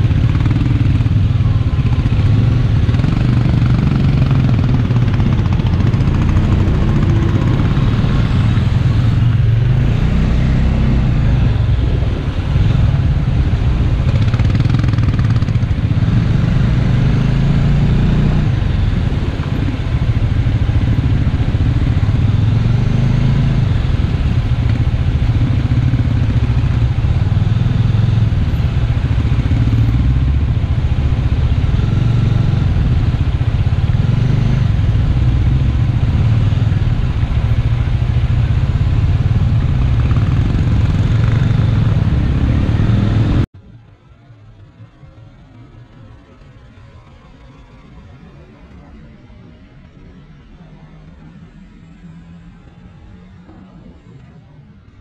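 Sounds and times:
motorcycle engine at low revs: 0:00.0 - 0:43.5.

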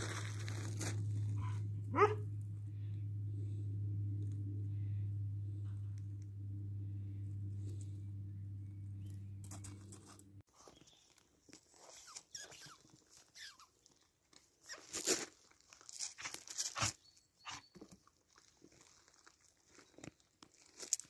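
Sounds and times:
steady low hum: 0:00.0 - 0:10.5.

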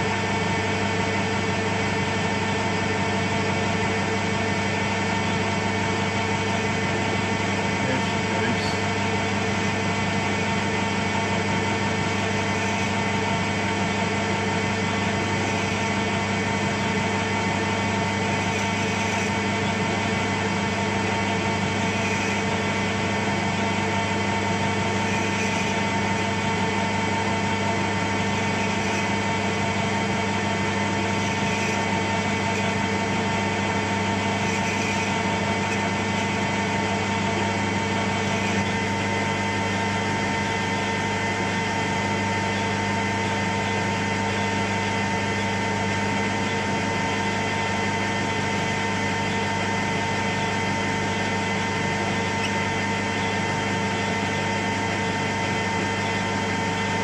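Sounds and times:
metal lathe humming: 0:00.0 - 0:57.0.

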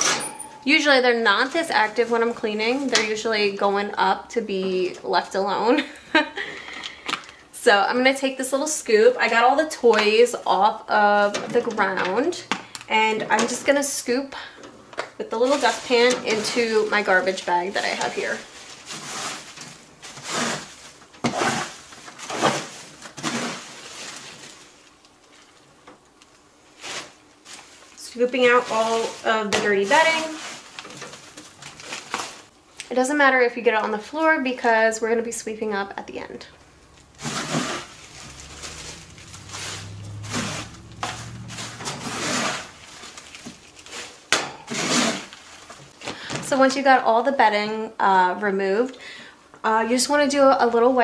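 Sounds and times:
dustpan scraping and scooping bedding: 0:15.4 - 0:24.5, 0:28.3 - 0:31.0, 0:36.9 - 0:45.4.

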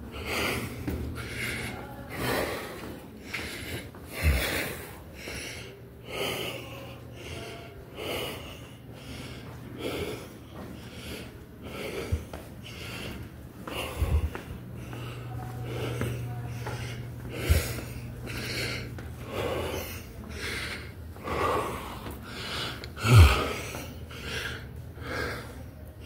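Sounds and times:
person breathing hard: 0:00.0 - 0:25.9.

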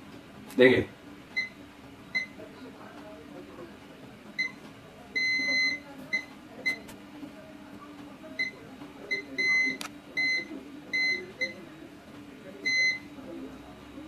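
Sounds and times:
multimeter beeps: 0:01.4 - 0:02.4, 0:04.4 - 0:04.6, 0:05.2 - 0:06.9, 0:08.4 - 0:11.6, 0:12.6 - 0:13.1.

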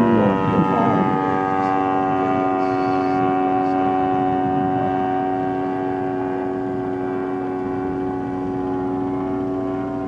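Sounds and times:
model plane engine droning: 0:00.0 - 0:10.0.

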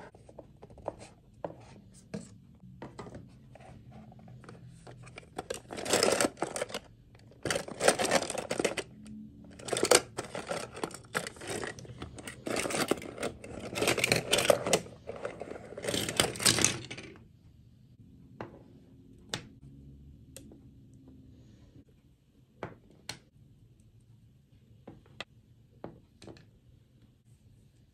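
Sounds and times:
plastic dolls rattling in box: 0:04.7 - 0:17.2.

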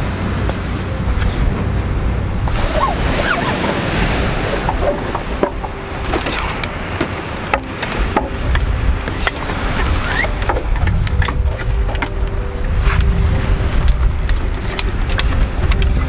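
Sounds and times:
steady low hum: 0:00.0 - 0:16.0
wind and surf rumble: 0:00.0 - 0:16.0
wooden clicks and knocks: 0:04.7 - 0:09.6, 0:10.2 - 0:12.4.

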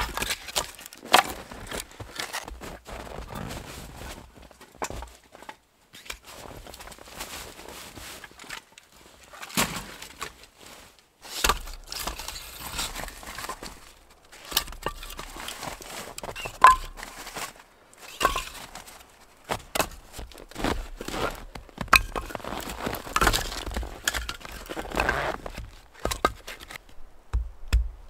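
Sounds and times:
rustling: 0:00.1 - 0:27.1
footsteps crunching in snow: 0:01.3 - 0:05.1, 0:06.2 - 0:09.1, 0:09.8 - 0:26.8
firewood logs knocking together: 0:11.4 - 0:17.4, 0:18.1 - 0:18.8, 0:19.5 - 0:28.0.

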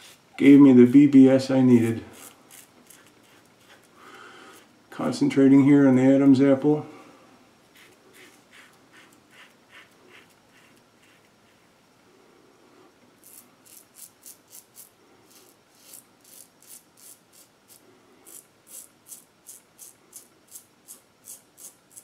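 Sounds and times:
razor scraping stubble: 0:01.7 - 0:04.7, 0:07.7 - 0:11.6, 0:13.2 - 0:22.0.

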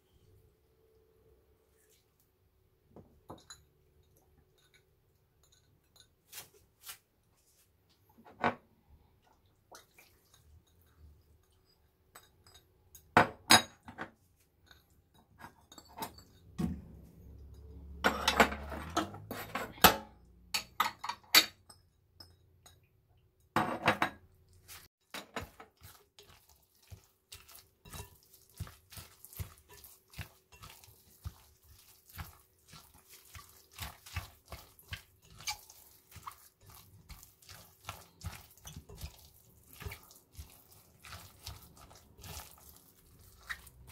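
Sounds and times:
utensils clinking against bowls: 0:03.3 - 0:06.2, 0:17.4 - 0:22.8, 0:27.0 - 0:32.3, 0:33.3 - 0:43.9.

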